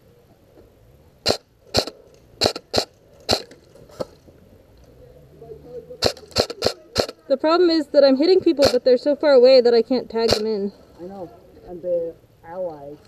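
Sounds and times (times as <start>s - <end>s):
airsoft rifle shots: 1.2s - 3.6s, 6.0s - 7.4s, 8.4s - 9.0s, 10.2s - 10.6s.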